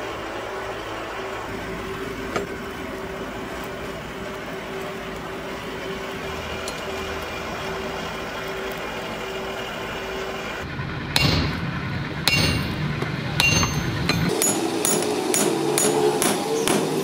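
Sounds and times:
low hum: 0.5s - 16.8s
hammer ringing on anvil: 11.2s - 11.6s, 12.2s - 12.8s, 13.4s - 17.0s.

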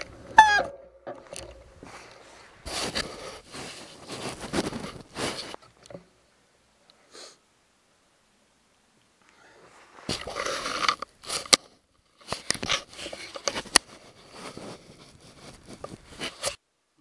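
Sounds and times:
scraping and rubbing on microphone: 0.0s - 5.8s, 9.7s - 16.6s.

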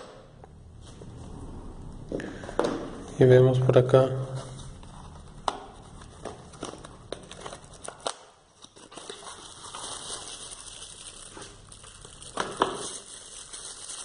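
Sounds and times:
plastic bags crinkling: 6.4s - 14.0s.

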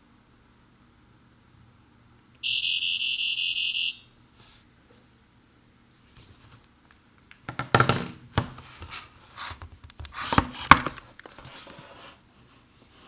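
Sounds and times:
handling knocks scrapes and rubbing: 8.4s - 12.2s.

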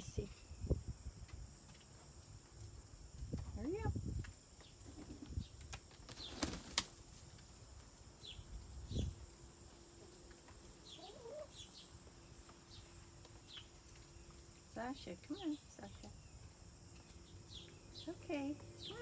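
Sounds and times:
hen wing flaps: 4.9s - 7.3s.

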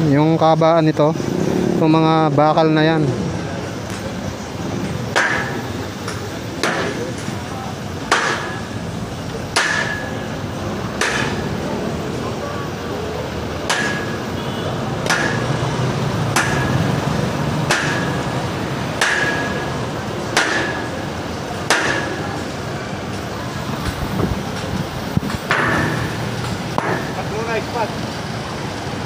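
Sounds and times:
sledgehammer striking concrete: 5.1s - 7.2s, 8.1s - 8.8s, 9.5s - 10.2s, 11.0s - 11.6s, 13.6s - 14.3s, 15.0s - 15.6s, 16.3s - 17.0s, 17.6s - 18.3s, 19.0s - 22.4s, 25.4s - 27.5s.

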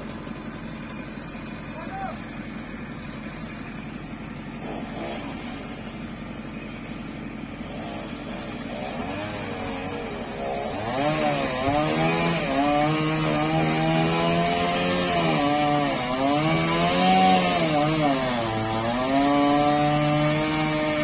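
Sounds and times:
diesel engine running: 0.0s - 12.2s
chainsaw revving: 0.0s - 21.0s.

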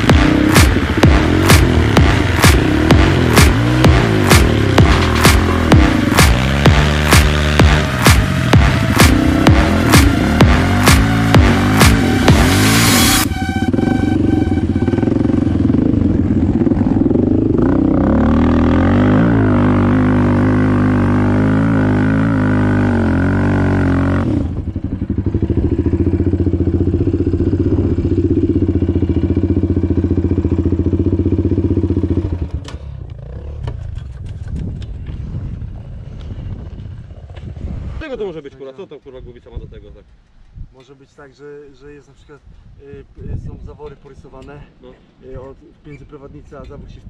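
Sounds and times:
quad engine revving: 0.0s - 33.9s.

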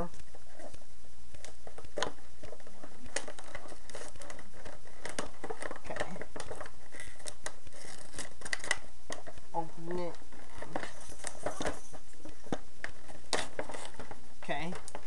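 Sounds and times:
packaging crinkling and rustling: 0.0s - 15.0s
steady low hum: 0.0s - 15.0s.

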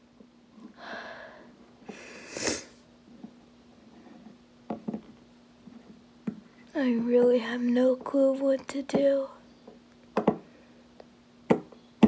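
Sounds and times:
soft breath: 0.7s - 2.8s
person sneezing: 2.1s - 2.8s.

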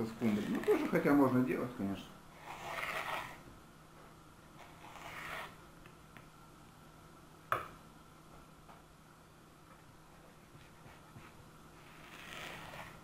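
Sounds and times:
knife scraping on cutting board: 2.4s - 3.4s, 4.6s - 5.6s, 11.9s - 13.0s.

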